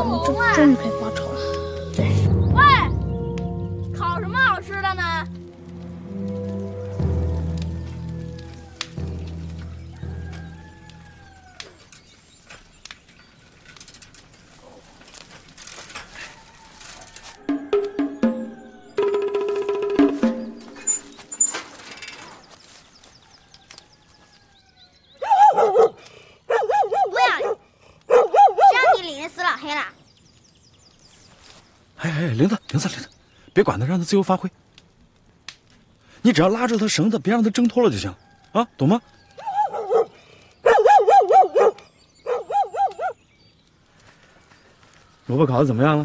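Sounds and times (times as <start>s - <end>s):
dog barking: 25.2s - 29.1s, 39.4s - 43.2s.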